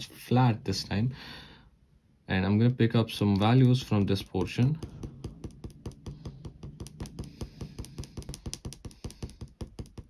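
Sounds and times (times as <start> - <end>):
eraser tapping on paper: 3.4 - 10.0.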